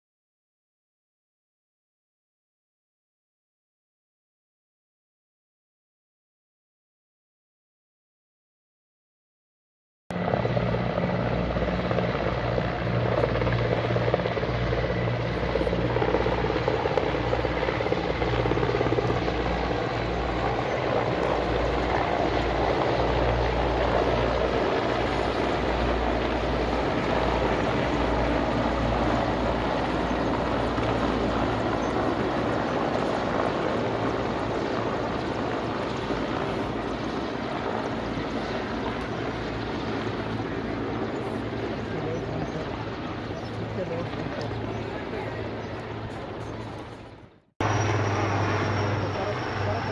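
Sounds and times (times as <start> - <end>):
helicopters flying past: 10.1 - 49.9.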